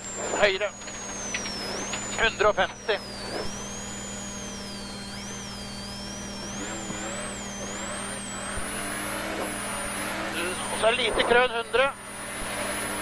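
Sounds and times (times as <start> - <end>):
car engine revving hard: 7.6 - 11.4.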